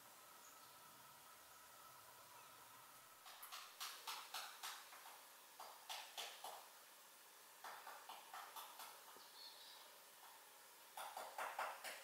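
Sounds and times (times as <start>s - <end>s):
wren ticking calls: 7.6s - 9.9s.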